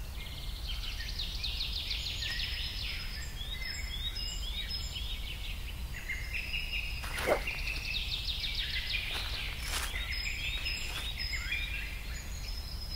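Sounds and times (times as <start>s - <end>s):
birds chirping: 0.0s - 12.9s
bird trill: 6.0s - 12.9s.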